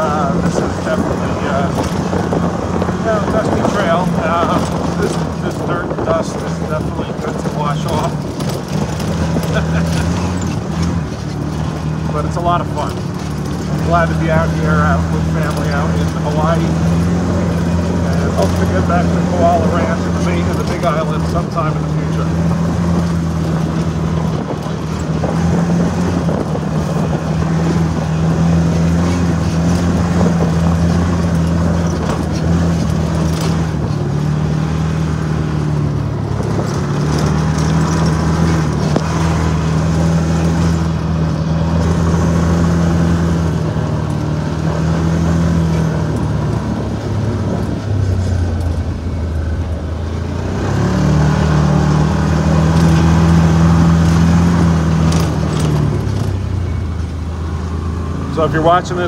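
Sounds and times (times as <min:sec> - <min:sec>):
wind noise: 0:00.0 - 0:12.0, 0:22.4 - 0:44.0
engine droning: 0:00.0 - 0:59.0
rough ride rattle: 0:00.0 - 0:59.0.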